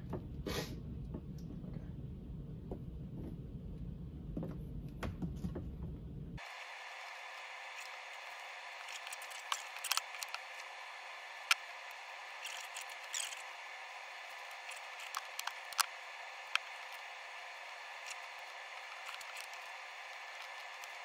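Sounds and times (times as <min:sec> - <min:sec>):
plastic connectors clicking: 0:08.8 - 0:10.5, 0:14.3 - 0:15.9, 0:18.0 - 0:19.7.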